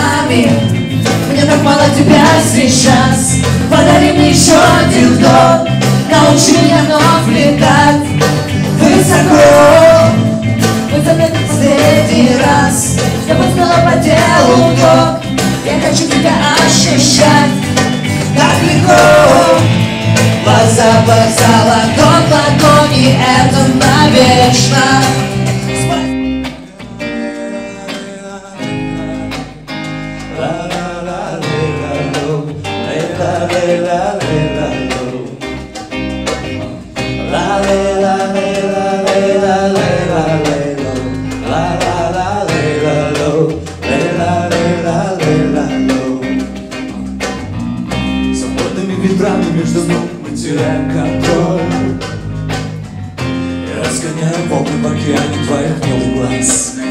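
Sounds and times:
hand drum: 0.0s - 27.4s, 28.6s - 56.9s
song with singing: 0.0s - 47.3s, 48.2s - 56.9s
electric guitar: 0.0s - 56.9s.

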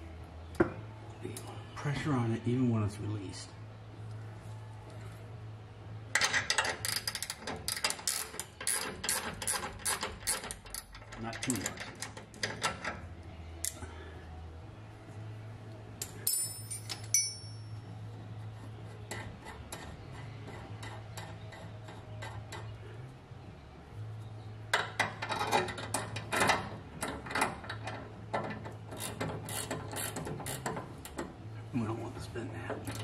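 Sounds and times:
wrenches clicking on metal nut: 6.2s - 13.0s, 24.7s - 31.3s
ringing metal clink: 16.0s - 17.8s.

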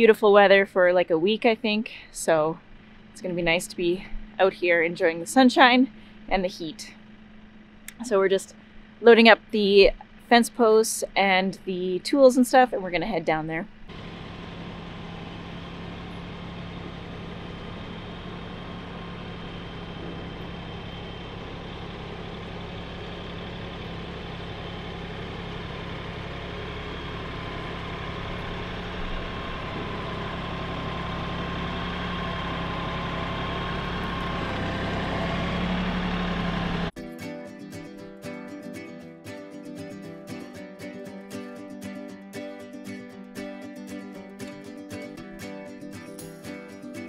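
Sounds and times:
tractor engine running: 0.0s - 37.0s
acoustic guitar music: 36.9s - 47.0s.

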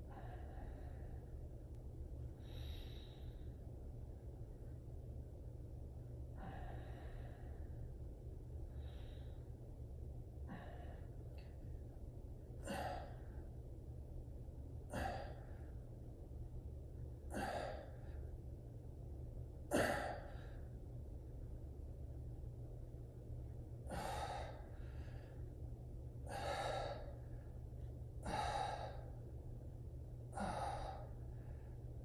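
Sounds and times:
steady low hum: 0.0s - 32.0s
man exhaling breathily: 23.9s - 25.4s, 26.2s - 27.4s, 28.2s - 29.2s, 30.3s - 31.7s.

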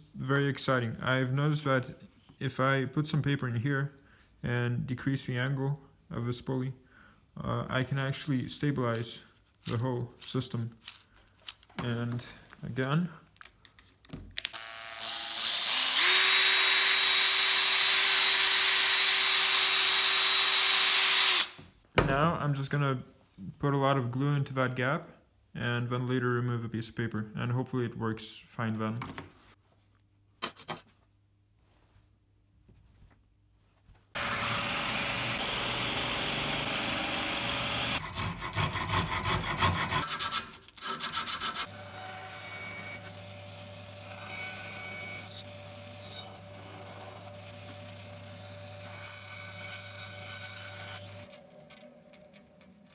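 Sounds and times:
power drill whining: 14.5s - 21.6s, 34.2s - 40.0s
drill press boring wood: 14.6s - 21.6s, 34.2s - 52.9s
hand file rasping wood: 37.6s - 41.7s
sandpaper rubbing wood: 38.1s - 41.7s.

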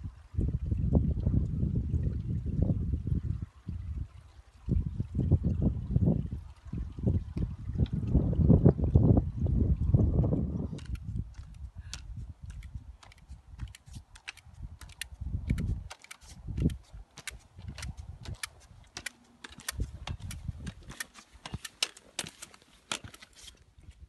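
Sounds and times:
trekking pole tips on stone: 10.7s - 24.0s
boots striking stone: 16.0s - 23.5s.

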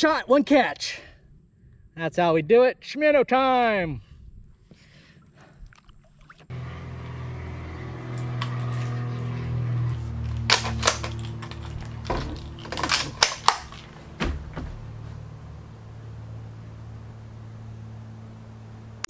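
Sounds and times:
steady low hum: 6.5s - 19.0s
rifle bolt clicks and clacks: 10.3s - 13.9s.

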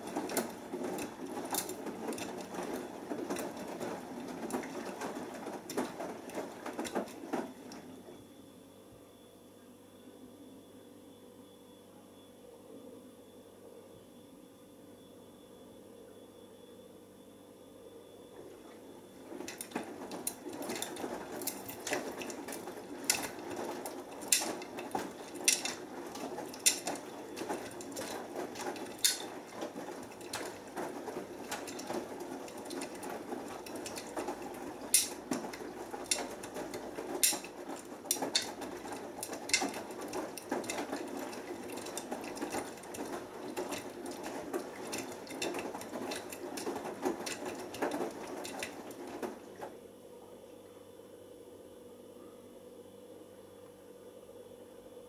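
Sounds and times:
washing machine drum tumbling: 0.0s - 8.2s, 19.1s - 49.8s.

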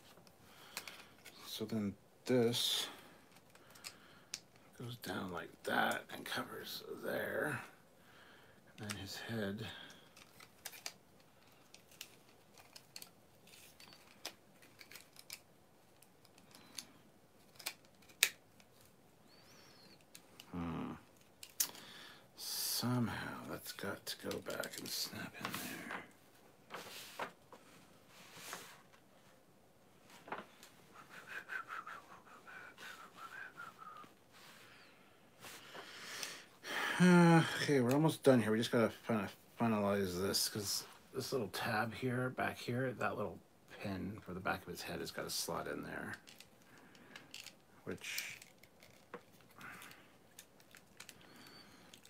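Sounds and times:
plastic toy parts clicking: 10.1s - 18.8s, 46.2s - 51.3s.

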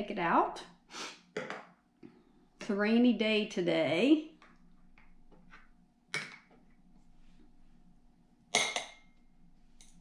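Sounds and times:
tableware clinking: 8.6s - 9.2s.

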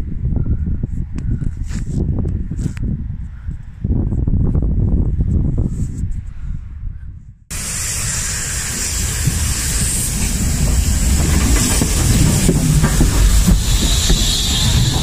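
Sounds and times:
low locomotive rumble: 7.5s - 15.0s
steam hissing: 7.5s - 15.0s.

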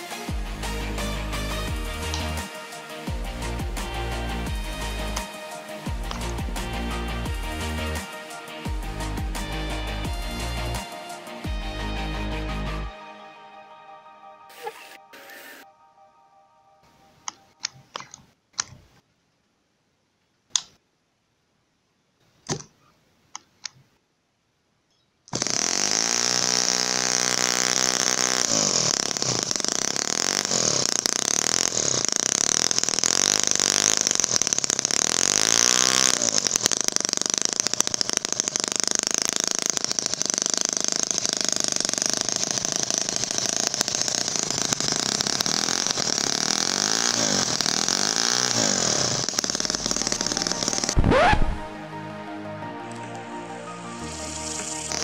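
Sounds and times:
model engine revving: 1.3s - 2.5s, 25.4s - 51.8s, 54.0s - 55.0s
clicks: 17.2s - 19.0s, 20.5s - 20.8s, 52.9s - 53.2s.

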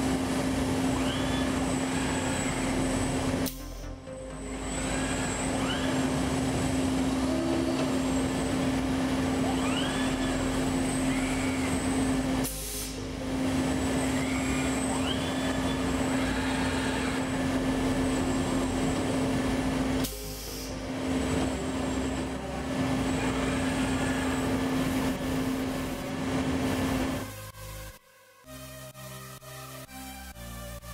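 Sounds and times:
steady machine hum: 0.0s - 30.9s
robot arm servo motors whining: 0.8s - 13.0s.

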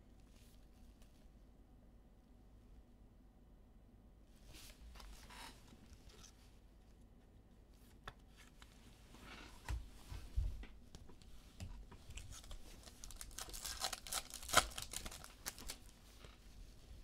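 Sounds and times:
cards and packaging rustling: 12.1s - 16.4s.

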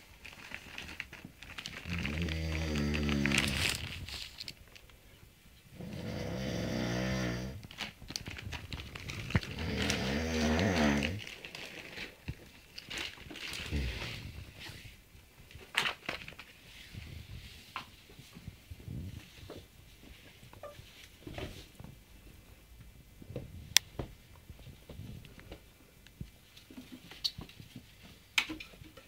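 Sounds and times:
bedding rustling: 0.0s - 4.7s, 5.8s - 22.1s
low drawn-out groans: 1.9s - 3.8s, 9.2s - 11.3s.

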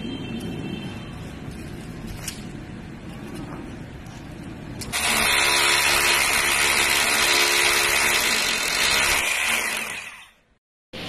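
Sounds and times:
power drill boring into masonry: 4.9s - 10.4s.

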